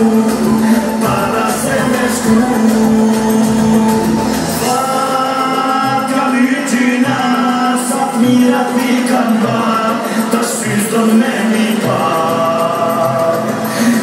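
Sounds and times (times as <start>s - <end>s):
deep bass: 0.0s - 6.2s
folk-pop band over loudspeakers: 0.0s - 14.0s
person singing: 0.0s - 14.0s.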